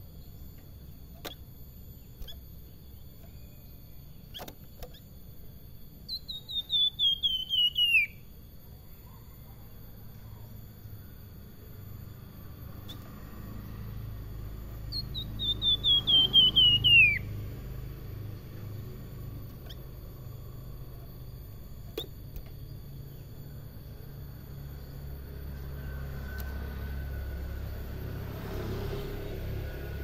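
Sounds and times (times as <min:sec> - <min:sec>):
songbird whistled notes: 0:06.0 - 0:08.3, 0:14.9 - 0:17.5.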